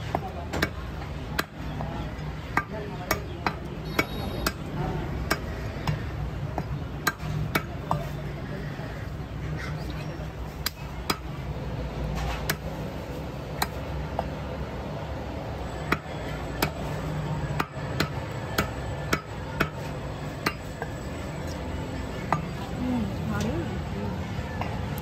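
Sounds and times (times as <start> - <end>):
cleaver chopping on wood: 5.2 - 8.1, 12.1 - 12.7, 13.5 - 14.3, 15.9 - 16.9.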